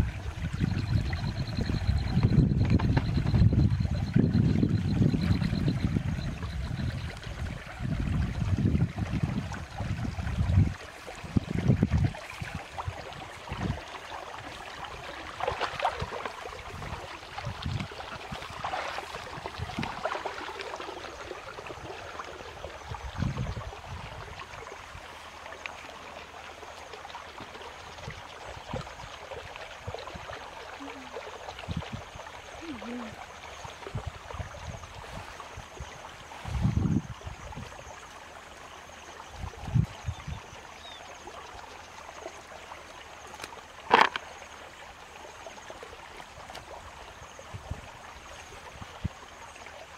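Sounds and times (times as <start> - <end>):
water trickling: 0.0 - 49.9
rustling of bamboo fish trap: 43.4 - 44.3.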